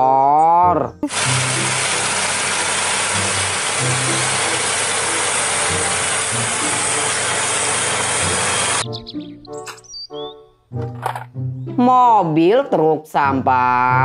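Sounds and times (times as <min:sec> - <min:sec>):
tractor engine running: 0:01.0 - 0:08.8.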